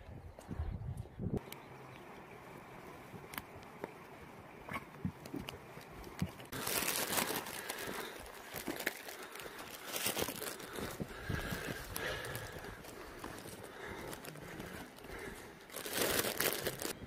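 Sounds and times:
dry branches and leaves crunching: 5.1 - 17.0.

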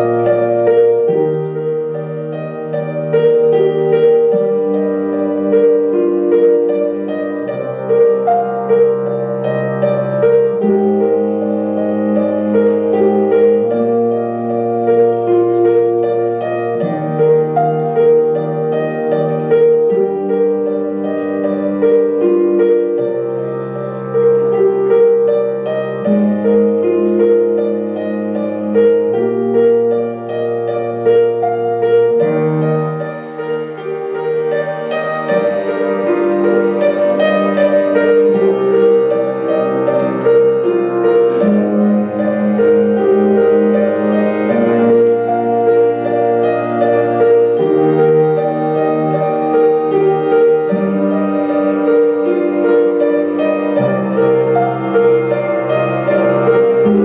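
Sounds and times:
slow piano music: 0.0 - 57.0.

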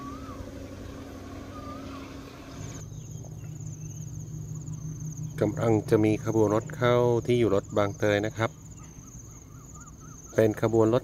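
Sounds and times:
distant diesel train running: 0.0 - 7.0
low hum: 0.0 - 7.5
insects trilling: 0.0 - 11.0.

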